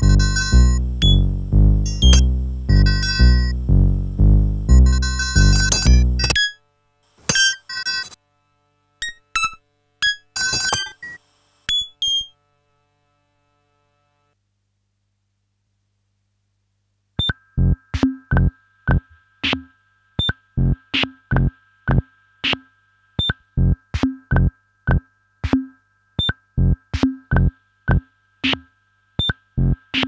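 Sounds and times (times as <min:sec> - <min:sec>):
synthesized kick and click beat: 0:00.0 - 0:06.4, 0:17.2 - 0:19.1, 0:26.2 - 0:28.6, 0:29.2 - 0:30.0.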